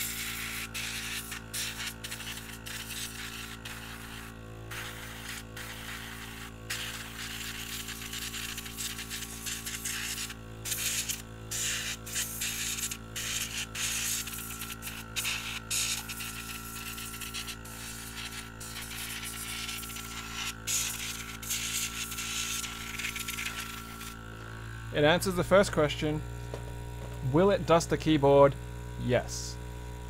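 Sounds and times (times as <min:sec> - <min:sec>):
airbrush air hiss: 0:00.0 - 0:24.2
air compressor droning: 0:00.0 - 0:30.0.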